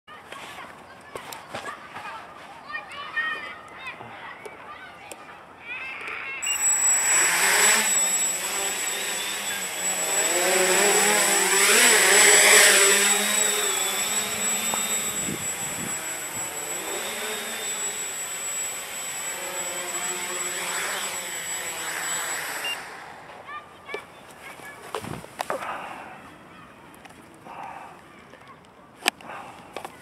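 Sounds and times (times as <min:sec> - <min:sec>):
quadcopter motors whining: 0:05.9 - 0:23.5.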